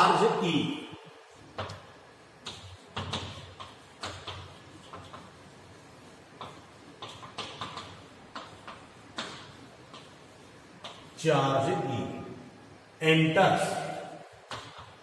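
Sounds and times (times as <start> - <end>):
chalk tapping on blackboard: 2.4 - 5.6, 6.3 - 11.2.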